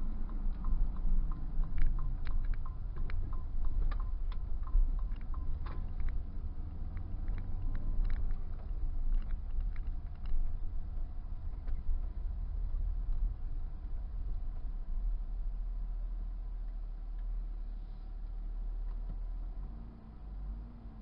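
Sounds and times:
light clicks and rattles: 0.0 - 14.8
engine and road rumble: 0.0 - 21.0.

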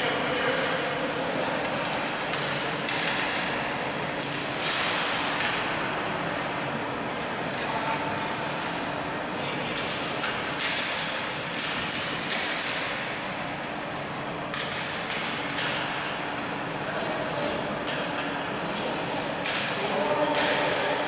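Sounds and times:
hockey sticks clacking on puck: 0.0 - 6.5, 7.1 - 8.9, 9.6 - 13.2, 14.5 - 20.9.

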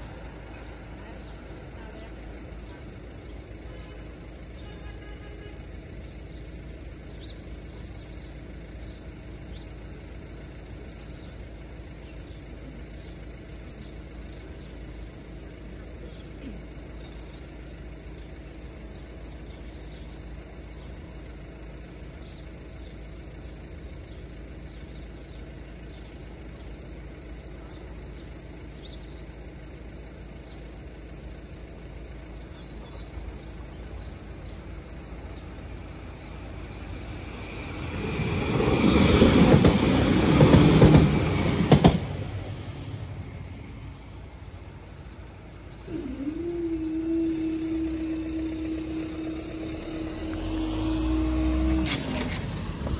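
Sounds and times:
faint steady hum: 42.9 - 51.4.

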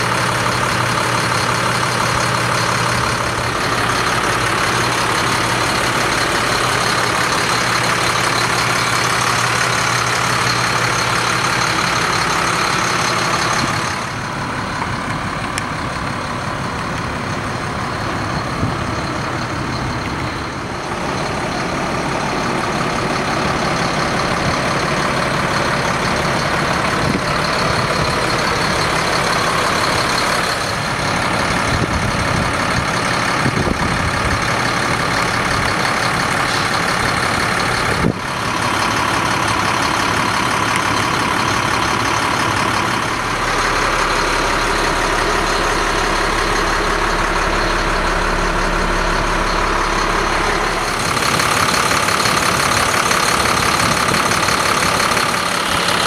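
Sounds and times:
diesel truck engine idling: 0.0 - 56.0.

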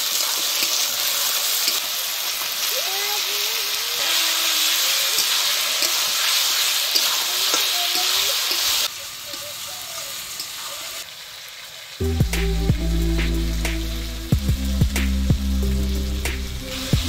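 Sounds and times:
onions sizzling in hot oil: 0.0 - 12.1
metal spatula clicking on pan: 0.2 - 0.9, 1.6 - 1.9, 5.1 - 9.5.

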